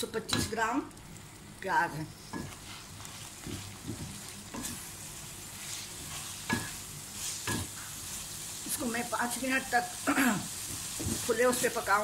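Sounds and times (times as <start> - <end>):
onions sizzling in gravy: 0.0 - 12.0
wooden spatula scraping pan: 2.3 - 4.9, 5.6 - 8.2, 10.6 - 11.8.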